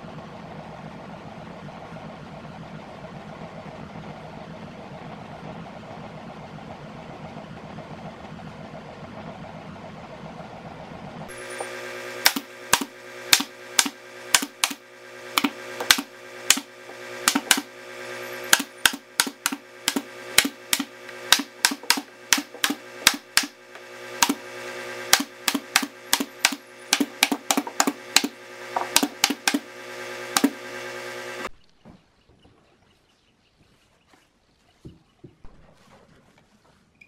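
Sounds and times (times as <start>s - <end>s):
steady hum: 9.0s - 31.6s
pneumatic staple gun firing: 11.3s - 31.5s.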